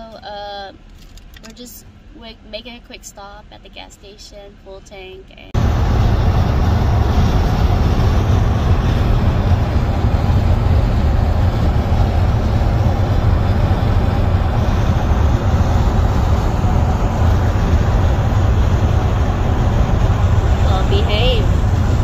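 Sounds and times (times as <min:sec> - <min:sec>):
car cabin road rumble: 0:05.4 - 0:22.0.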